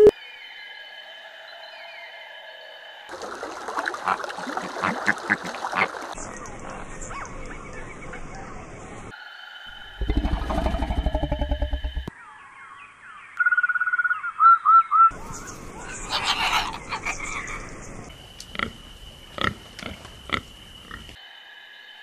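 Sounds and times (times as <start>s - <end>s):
bird chirps and trill: 12.1s - 18.1s
cockatoo screeching: 15.8s - 17.6s.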